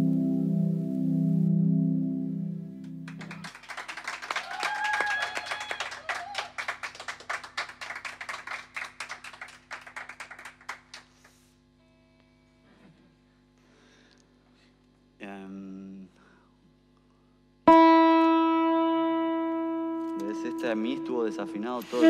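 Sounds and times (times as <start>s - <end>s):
faint amplifier hum: 0.0s - 22.0s
people clapping: 2.8s - 11.4s
people cheering: 3.1s - 10.5s.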